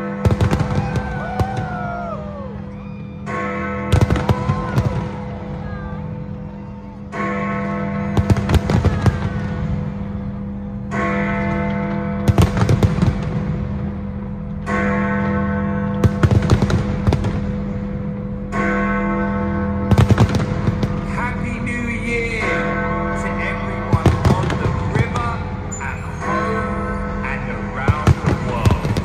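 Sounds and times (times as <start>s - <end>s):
fireworks bangs and crackles: 0.0s - 2.6s, 3.9s - 6.0s, 8.1s - 10.0s, 12.2s - 13.9s, 16.0s - 18.0s, 19.8s - 22.2s, 23.3s - 26.6s, 27.3s - 29.0s.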